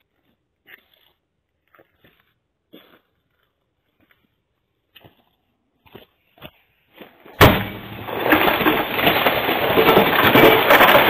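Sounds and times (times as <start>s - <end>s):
glass smashing and crunching: 7.4s - 11.0s
loud crash: 7.4s - 11.0s.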